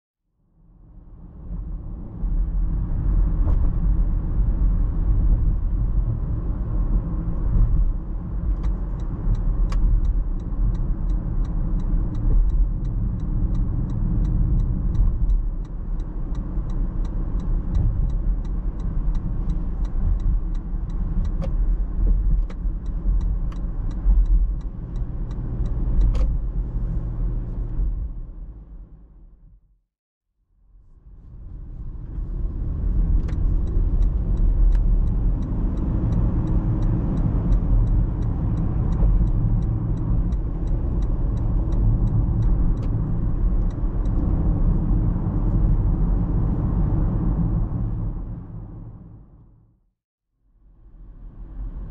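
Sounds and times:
car road and engine rumble: 0:00.6 - 0:29.6, 0:30.7 - 0:49.7, 0:50.8 - 0:51.9
turn signal ticking: 0:06.4 - 0:27.9, 0:32.4 - 0:46.0.

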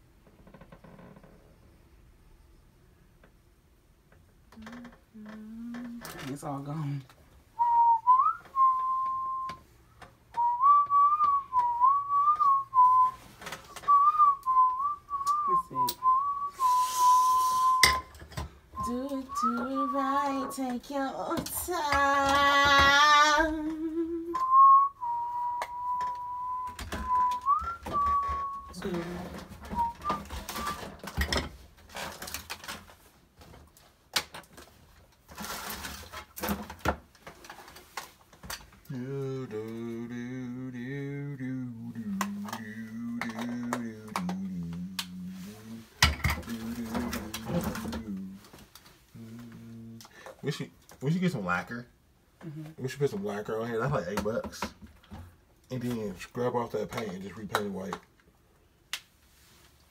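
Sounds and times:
person whistling a tune: 0:07.6 - 0:09.6, 0:10.4 - 0:18.0, 0:18.8 - 0:20.5, 0:23.8 - 0:28.8, 0:29.6 - 0:30.9
plastic packaging rustling: 0:27.0 - 0:38.8.

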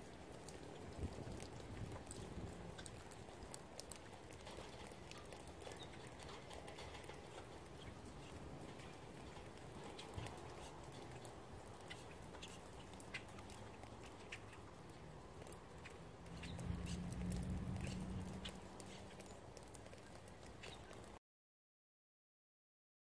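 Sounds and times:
faint steady hiss of rain: 0:00.0 - 0:21.2
raindrops ticking: 0:00.0 - 0:21.2.

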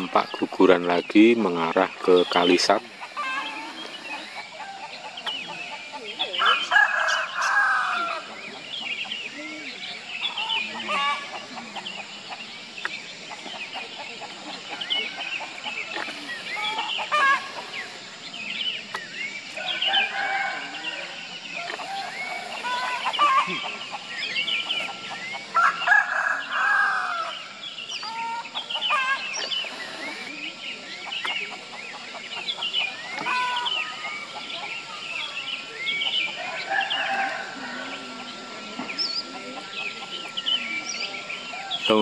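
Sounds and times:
chickens clucking: 0:00.0 - 0:42.0
rooster crowing: 0:06.3 - 0:08.4, 0:19.6 - 0:23.6, 0:25.5 - 0:27.4, 0:36.3 - 0:39.9.

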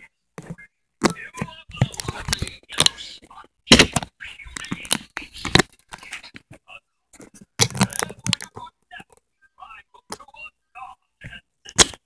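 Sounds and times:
phone handling noise: 0:07.2 - 0:08.6.

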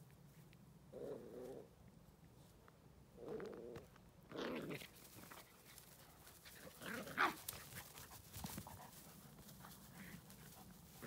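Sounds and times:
dogs play-fighting noises: 0:04.5 - 0:11.0.

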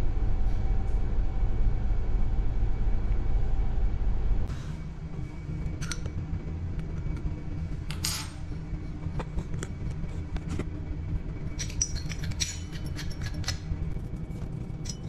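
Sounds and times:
steady low hum: 0:00.0 - 0:15.0
metal plumbing fittings clinking: 0:11.6 - 0:13.6.

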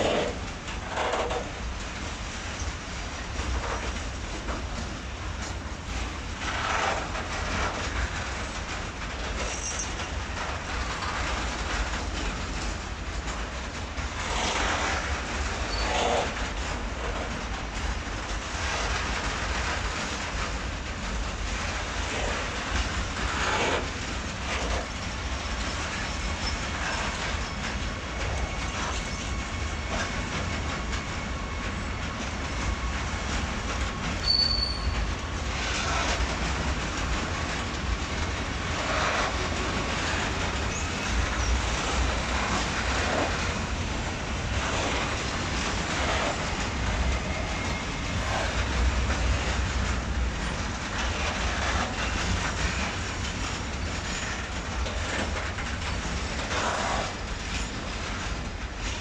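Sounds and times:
freight train rumbling past: 0:00.0 - 0:59.0
high wheel squeal: 0:15.6 - 0:16.3, 0:34.2 - 0:35.1
wheels knocking on rail joints: 0:32.0 - 0:59.0.

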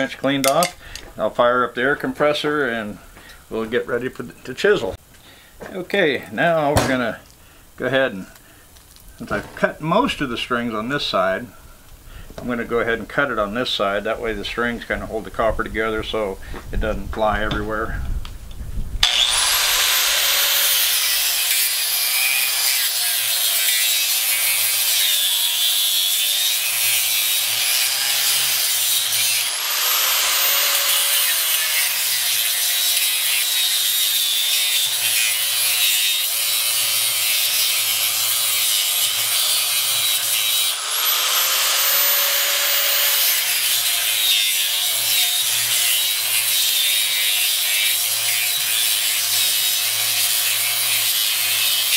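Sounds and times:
angle grinder cutting: 0:19.0 - 0:51.9.

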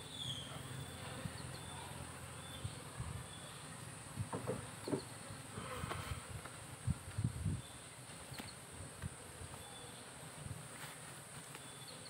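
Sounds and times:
soft knocks: 0:04.3 - 0:05.1.

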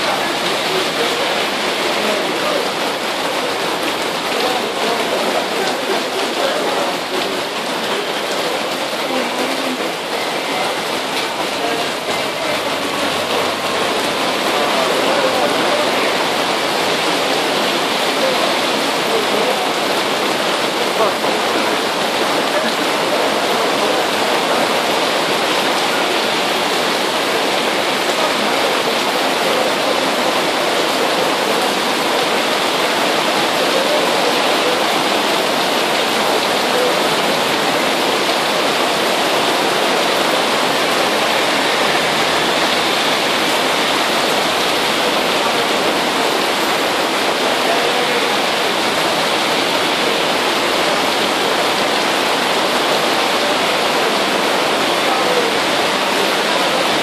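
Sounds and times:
heavy rain on street: 0:00.0 - 0:57.0.

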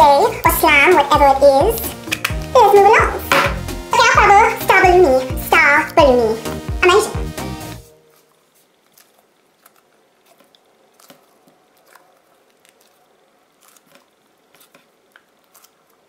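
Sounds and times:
slime stress ball squishing: 0:08.1 - 0:16.0.

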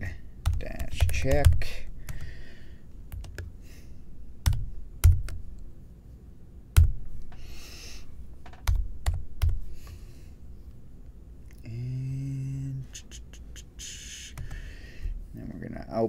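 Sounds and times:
typing on computer keyboard: 0:00.4 - 0:02.3, 0:03.1 - 0:03.5.

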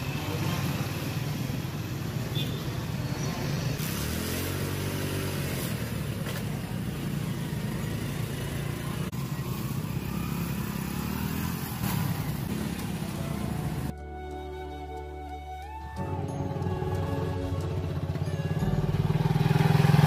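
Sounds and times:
motorcycle engine revving: 0:03.4 - 0:13.9, 0:18.6 - 0:20.0.

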